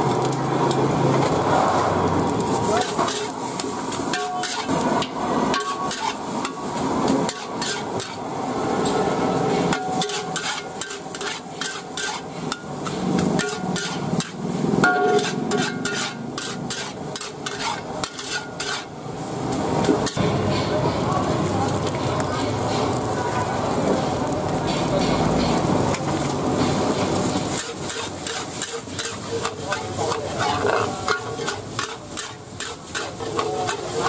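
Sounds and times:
food sizzling: 0.0 - 34.0
utensils scraping a steel wok: 0.0 - 34.0.

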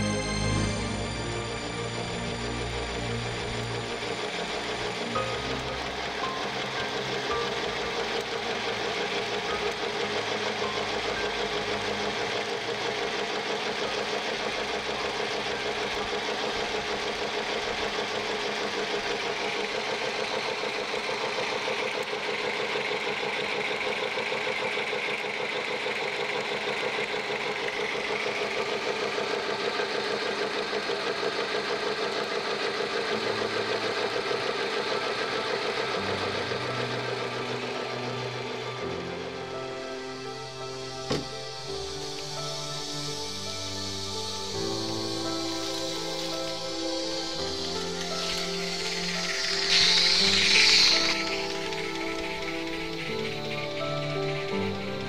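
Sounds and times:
clatter of locomotive motion: 0.0 - 55.0
steam locomotive exhausting steam: 0.0 - 55.0.

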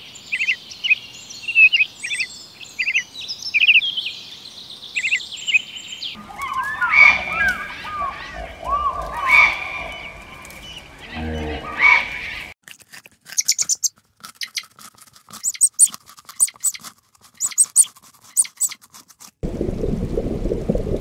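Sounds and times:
birds chirping: 0.0 - 12.6, 13.4 - 14.7, 15.4 - 16.8, 17.4 - 18.8
rabbits crunching leafy greens: 6.2 - 11.4, 12.6 - 19.4
low bird call: 6.2 - 12.5.

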